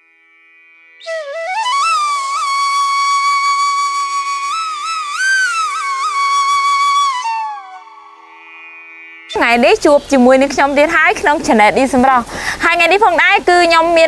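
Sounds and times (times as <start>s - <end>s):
sliding melody line: 1.0s - 9.8s
soft steady drone: 7.1s - 11.8s.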